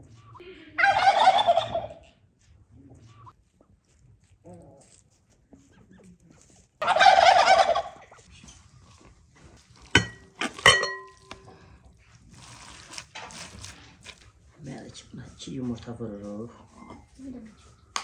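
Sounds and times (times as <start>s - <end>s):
turkey gobbling: 0.8s - 2.1s, 6.8s - 8.3s.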